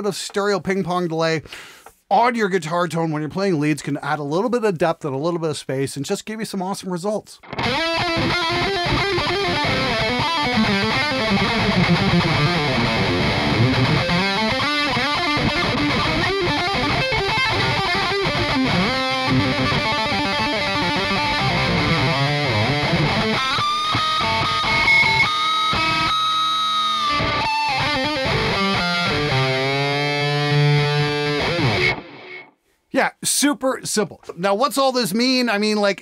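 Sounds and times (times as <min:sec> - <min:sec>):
distorted electric guitar lead: 0:07.4 - 0:32.5.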